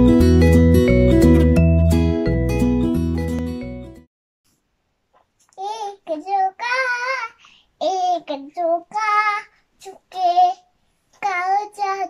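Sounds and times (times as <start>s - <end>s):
boy singing unaccompanied: 5.5s - 12.0s.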